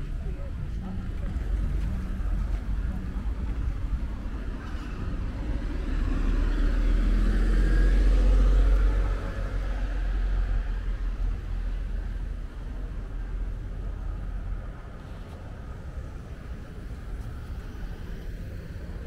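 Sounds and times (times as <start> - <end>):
steady low traffic rumble: 0.0 - 19.0
car driving past: 4.6 - 11.3.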